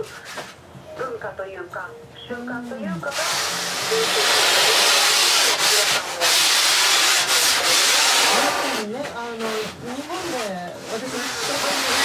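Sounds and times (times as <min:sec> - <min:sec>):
sanding foam scratchy hiss: 0:03.1 - 0:12.0.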